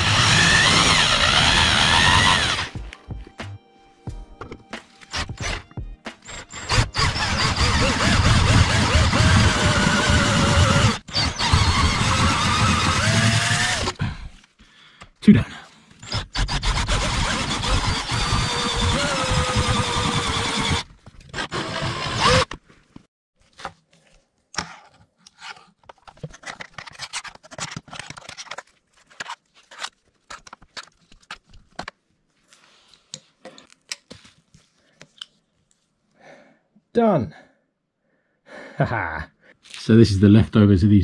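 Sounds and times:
electric drill running: 0.0 - 2.7, 5.1 - 14.0, 16.4 - 22.5.

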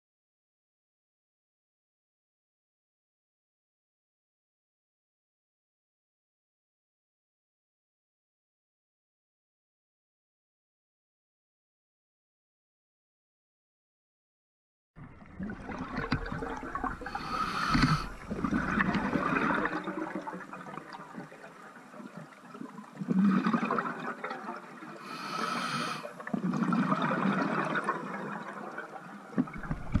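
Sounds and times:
exhaled air bubbling: 15.0 - 30.0
regulator inhalation hiss: 17.1 - 18.2, 25.0 - 26.1.

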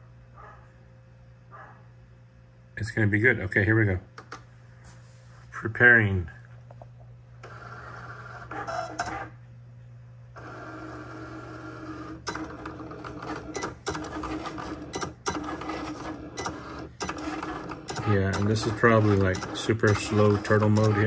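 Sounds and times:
cutting machine motors whirring: 7.4 - 9.4, 10.4 - 21.0
machine clicks: 12.2 - 21.0.

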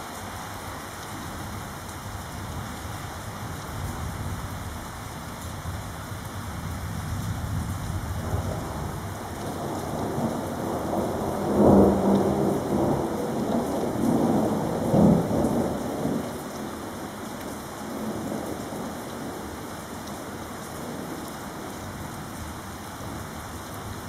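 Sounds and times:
thunder rumbling: 8.0 - 16.2.

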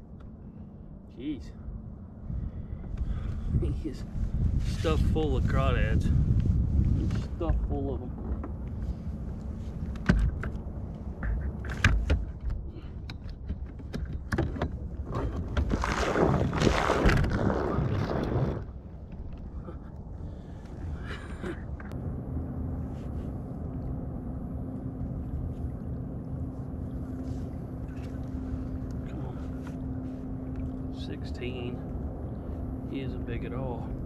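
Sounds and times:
low motor hum: 0.0 - 34.0
water splashing: 15.3 - 19.6, 25.1 - 32.4.

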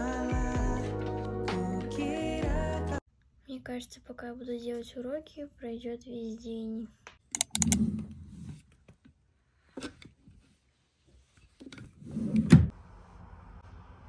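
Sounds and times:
plastic drawer sliding: 11.6 - 12.7.

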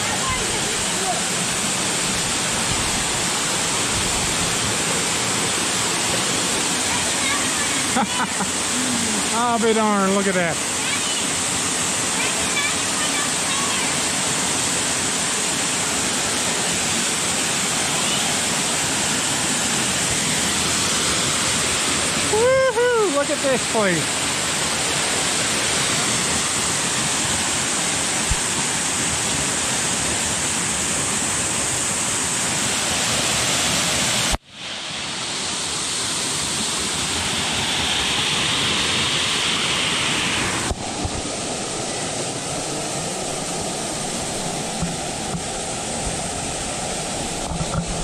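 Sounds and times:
waterfall pouring into pool: 0.0 - 48.0.

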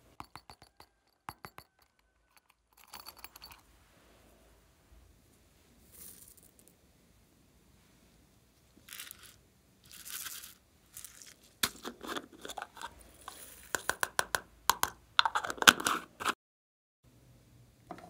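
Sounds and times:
plastic lid scraping: 15.2 - 16.4.

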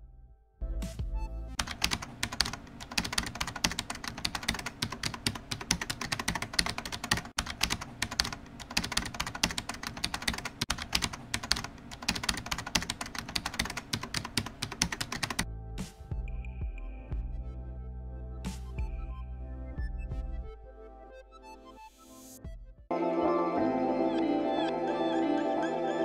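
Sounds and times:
keyboard typing clicks: 1.6 - 15.4.

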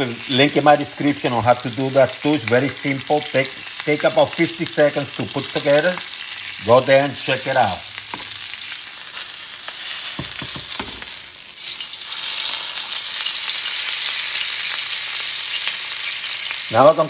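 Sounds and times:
steak sizzling in a pan: 0.0 - 17.0
soft knocks: 10.2 - 11.1.

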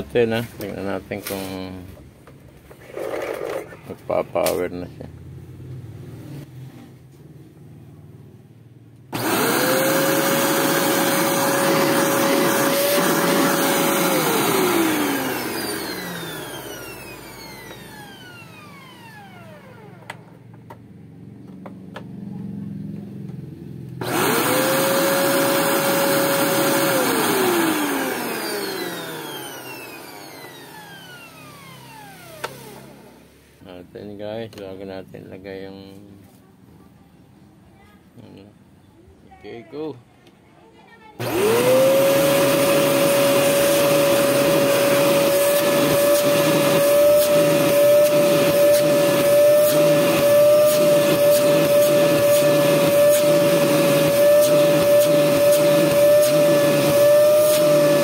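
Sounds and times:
vacuum cleaner motor whining: 9.1 - 20.4, 24.0 - 33.5, 41.2 - 58.0.

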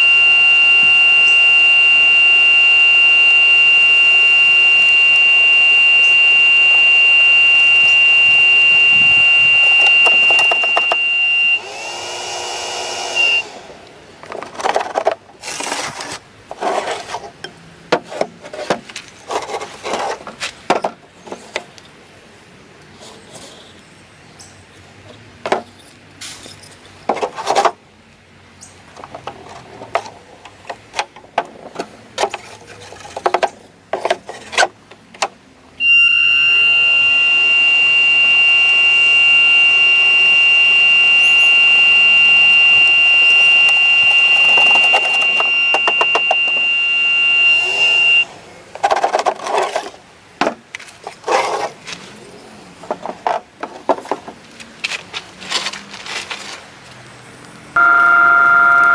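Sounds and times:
blower fan whining: 0.0 - 16.7, 35.8 - 50.2, 57.8 - 58.9.

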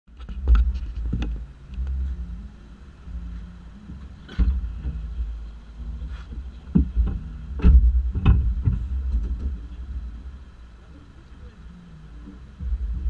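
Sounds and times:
wind thumps on microphone: 0.1 - 2.1, 3.8 - 10.6, 12.3 - 13.0
wind buffeting microphone: 11.5 - 13.0.

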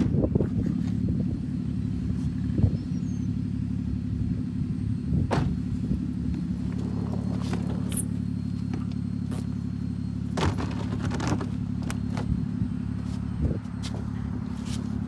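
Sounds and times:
car engine idling: 0.0 - 15.0
dull thump: 5.2 - 5.7, 10.3 - 11.5.

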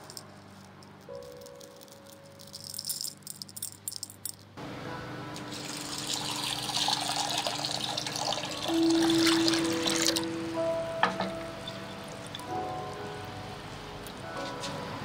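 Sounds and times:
dried peas pattering into glass bowl: 0.0 - 4.4
water pouring into bowl: 5.5 - 10.3.

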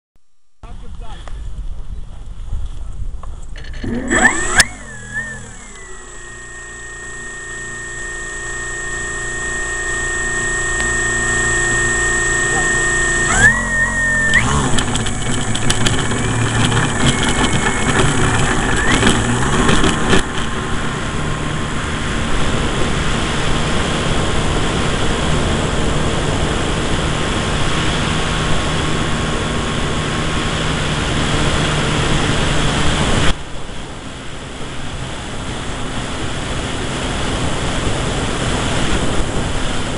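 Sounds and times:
electric motor whine: 3.6 - 33.4
rushing air: 3.8 - 34.0
wheels knocking and rattling on grass: 13.4 - 21.5.

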